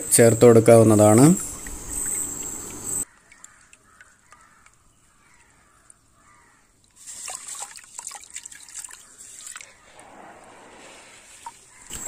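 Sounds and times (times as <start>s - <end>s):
water dripping and trickling: 1.0s - 10.0s, 11.1s - 12.0s
water splashing in tub: 7.0s - 10.0s.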